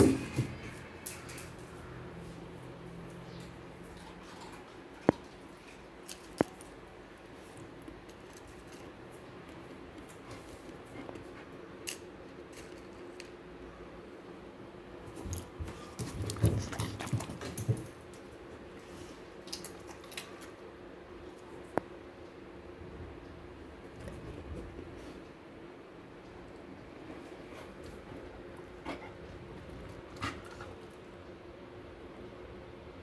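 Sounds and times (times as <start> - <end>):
dog knocking and rustling: 0.0 - 0.8.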